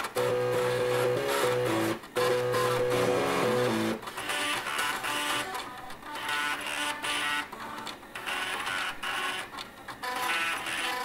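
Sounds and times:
stepper motors playing melody: 0:00.2 - 0:05.6.

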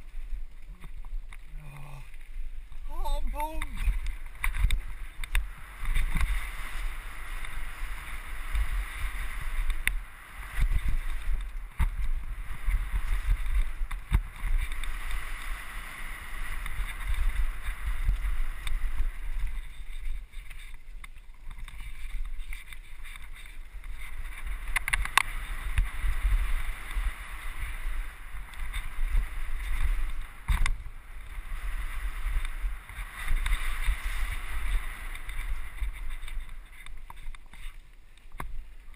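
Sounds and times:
bike tyre rumble on dirt: 0:00.0 - 0:38.9
bike rattling over bumps: 0:03.7 - 0:38.9.

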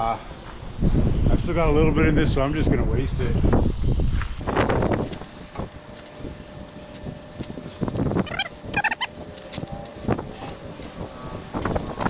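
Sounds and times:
wind rumble on microphone: 0:00.6 - 0:12.0
cooking spray hissing: 0:03.1 - 0:12.0.

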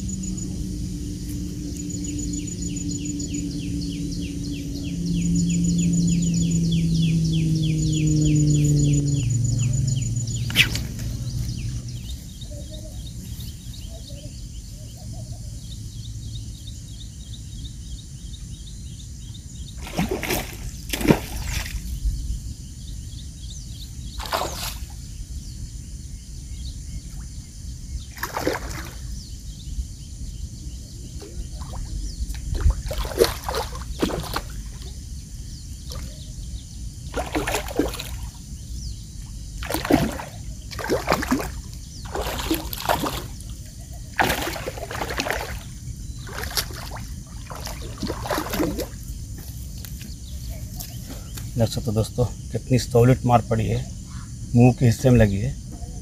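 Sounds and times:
low background rumble: 0:00.0 - 0:19.8, 0:29.0 - 0:56.0
fish splashing in water: 0:19.8 - 0:21.9, 0:24.2 - 0:25.0, 0:28.2 - 0:29.1, 0:31.6 - 0:35.0, 0:37.1 - 0:38.4, 0:39.4 - 0:49.2.

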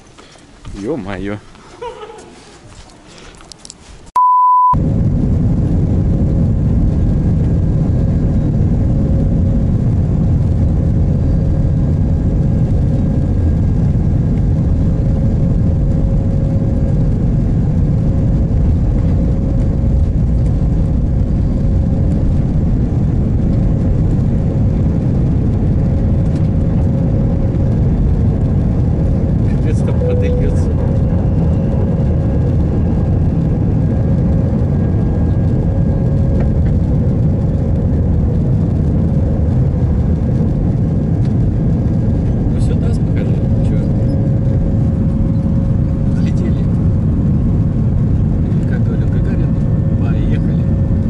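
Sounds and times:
airliner cabin rumble: 0:00.0 - 0:51.0
short beep: 0:04.2 - 0:04.8, 0:30.0 - 0:30.7.

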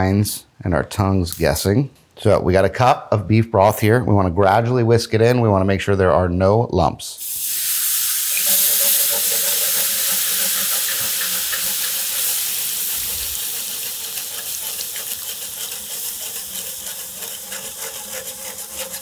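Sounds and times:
broth sizzling in hot skillet: 0:07.2 - 0:19.0
whisk in skillet: 0:07.2 - 0:19.0.

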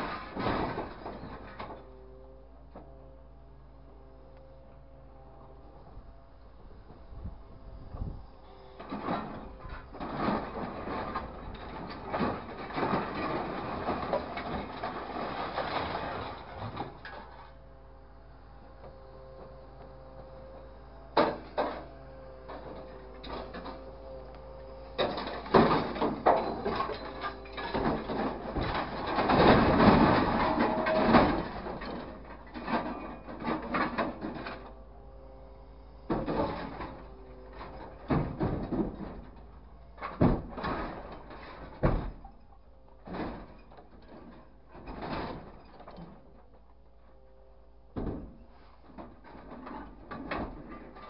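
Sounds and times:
scrap metal clanking: 0:00.0 - 0:01.9, 0:08.0 - 0:17.6, 0:20.4 - 0:34.9, 0:36.0 - 0:46.7, 0:47.9 - 0:51.0
steady machine hum: 0:00.0 - 0:45.0.

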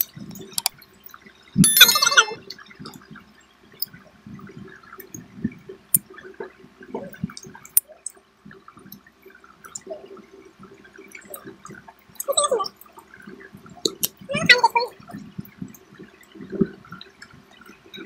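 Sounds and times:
chewing and wet mouth sounds: 0:13.8 - 0:14.3.

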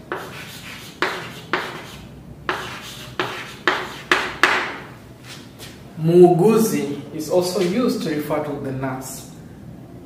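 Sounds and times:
chalk writing on chalkboard: 0:00.0 - 0:04.8.

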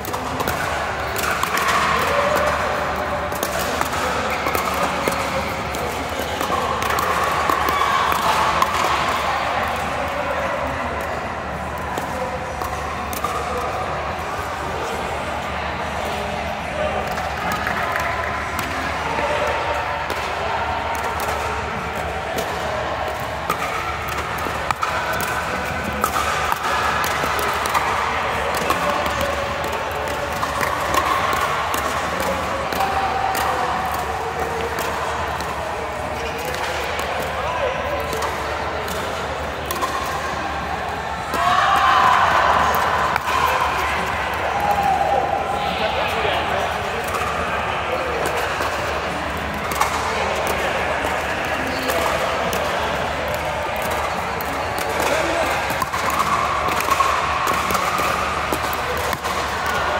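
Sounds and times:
background hubbub: 0:00.0 - 0:59.9.

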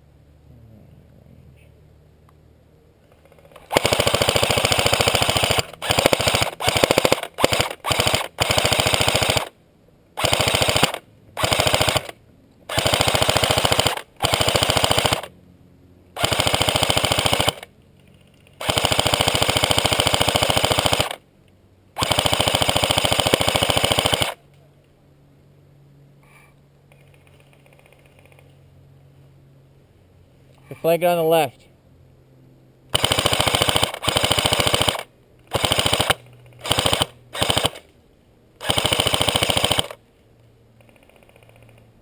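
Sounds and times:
airsoft gun firing bursts: 0:03.5 - 0:09.6, 0:10.2 - 0:15.3, 0:16.2 - 0:17.7, 0:18.6 - 0:21.2, 0:22.0 - 0:24.4, 0:32.9 - 0:37.9, 0:38.6 - 0:40.0.

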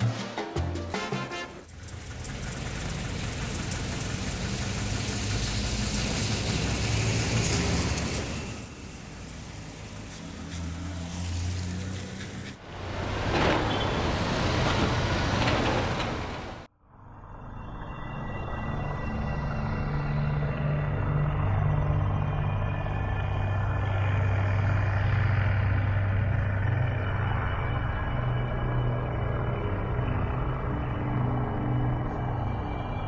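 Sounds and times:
street traffic noise: 0:01.0 - 0:16.7
vehicle passing: 0:01.8 - 0:16.7.

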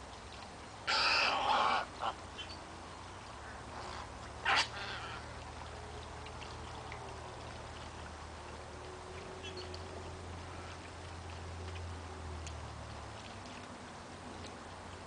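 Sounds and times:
low steady rumble: 0:00.0 - 0:15.0
wading bird squawk: 0:00.8 - 0:02.6, 0:03.4 - 0:05.5, 0:10.4 - 0:10.9.

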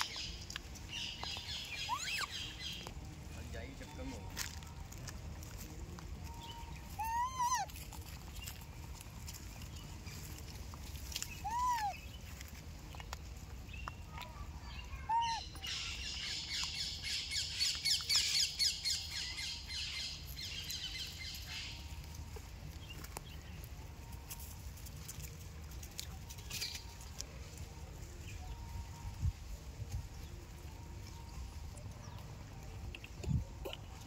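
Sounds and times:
birds chattering and squawking: 0:00.0 - 0:03.0, 0:05.5 - 0:23.8, 0:32.0 - 0:34.0
squeaky rising and falling calls: 0:01.8 - 0:02.6, 0:06.9 - 0:07.7, 0:11.4 - 0:12.0.

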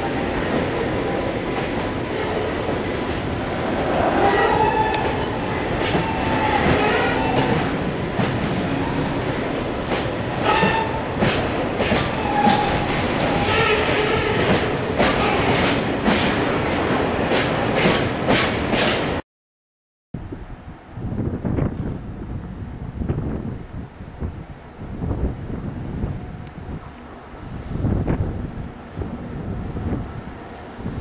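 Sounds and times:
train wheel squeals: 0:04.2 - 0:07.7, 0:10.4 - 0:12.8.

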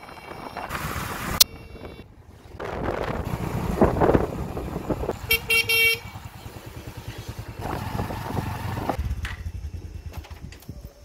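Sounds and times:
wind on microphone: 0:00.0 - 0:05.5
motorcycle engine rumbling: 0:00.0 - 0:11.0
horn honking short blasts: 0:05.1 - 0:06.2.

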